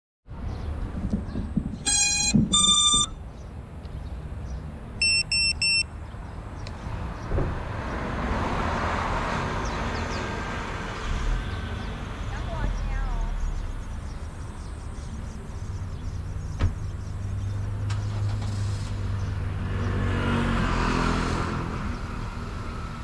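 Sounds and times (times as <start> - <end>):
electronic beeps: 1.8 - 3.2, 5.0 - 5.9.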